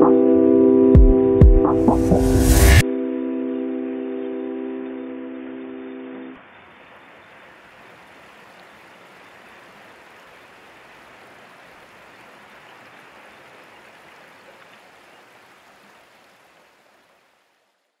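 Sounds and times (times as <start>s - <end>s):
steady rushing noise: 2.0s - 2.8s.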